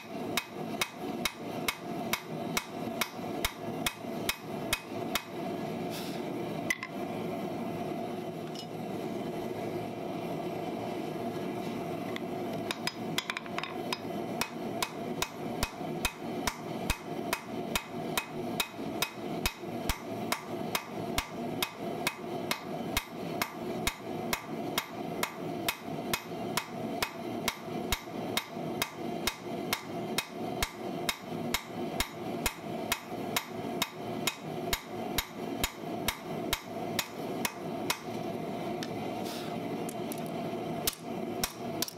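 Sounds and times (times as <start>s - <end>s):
steady hum: 0.0s - 41.9s
hammer striking on anvil: 0.4s - 5.4s, 12.7s - 38.1s.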